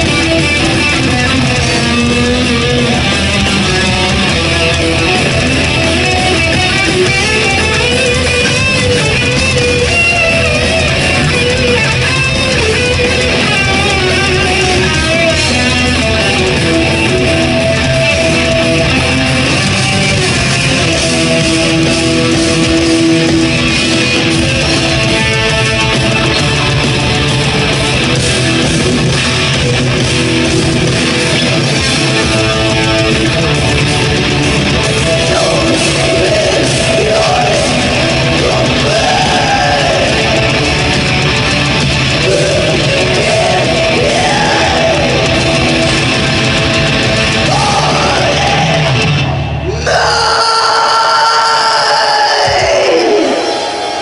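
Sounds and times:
drums: 0:00.0 - 0:54.0
electric guitars: 0:00.0 - 0:54.0.

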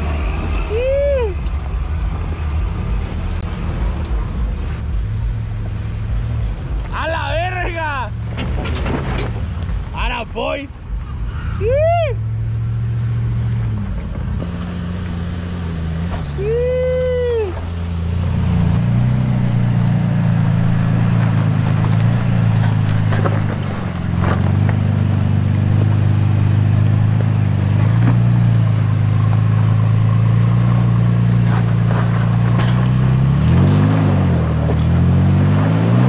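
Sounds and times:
truck engine running: 0:12.1 - 0:36.0
tyres crunching on stone: 0:18.8 - 0:35.6.

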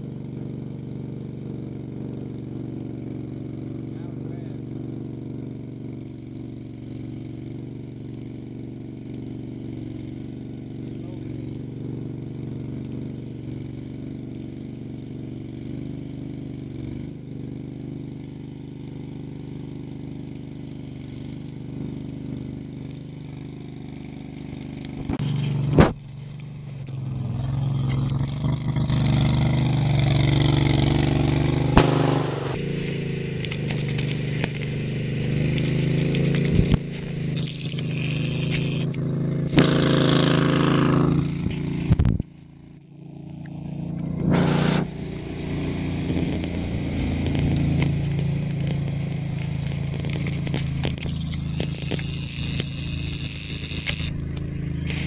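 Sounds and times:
driving through shallow water: 0:00.0 - 0:55.0
vehicle engine running: 0:00.0 - 0:55.0.

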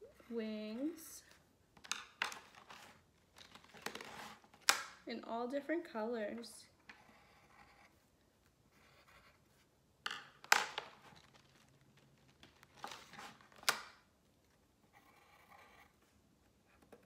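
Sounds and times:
pencils clattering in plastic case: 0:01.8 - 0:04.9
pencil scratching on paper: 0:07.0 - 0:08.0, 0:08.7 - 0:09.6, 0:14.8 - 0:16.1.

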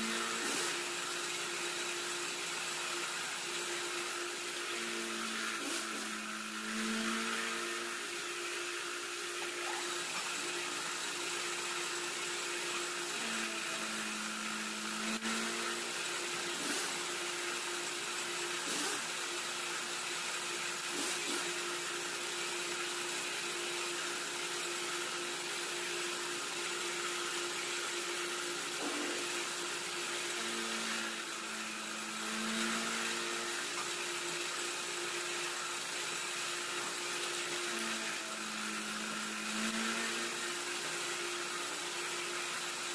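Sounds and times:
boring machine motor hum: 0:00.0 - 0:42.8.

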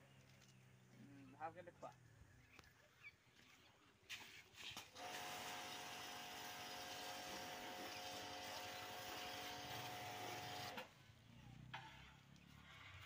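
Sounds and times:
pressure washer spraying water: 0:05.0 - 0:10.8.

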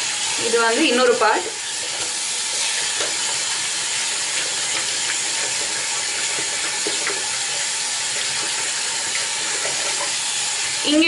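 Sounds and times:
tap water running into a basin: 0:00.0 - 0:11.0
hands rinsing wet cloth: 0:01.7 - 0:10.8.

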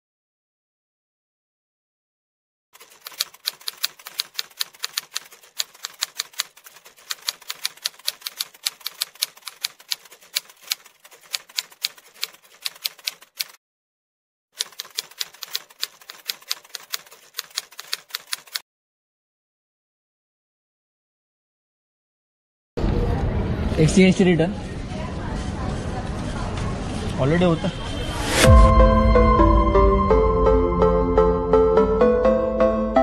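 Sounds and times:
typewriter key clicks: 0:02.8 - 0:13.6, 0:14.6 - 0:18.6.

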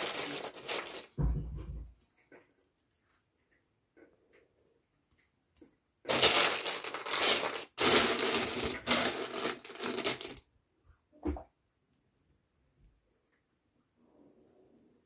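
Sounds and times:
plastic bricks clattering: 0:00.0 - 0:01.2, 0:06.1 - 0:10.4.

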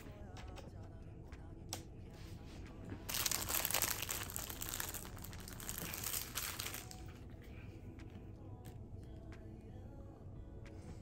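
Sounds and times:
packaging wrapper crinkling: 0:03.1 - 0:07.1.

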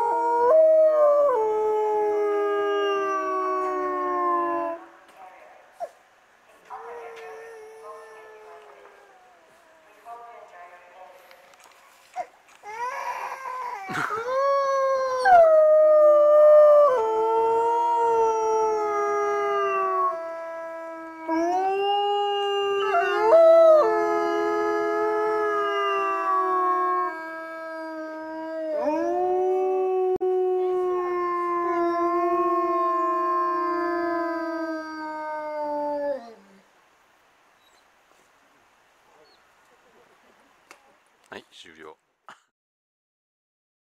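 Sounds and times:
wolves howling in chorus: 0:13.9 - 0:36.6.

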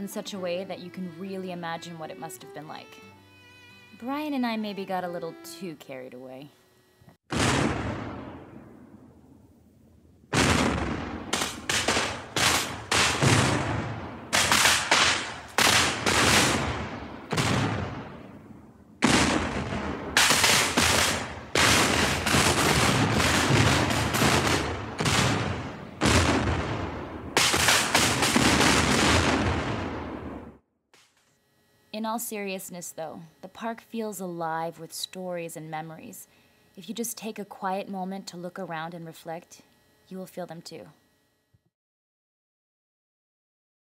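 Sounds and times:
echoing gunshots: 0:07.3 - 0:09.2, 0:10.3 - 0:30.6.

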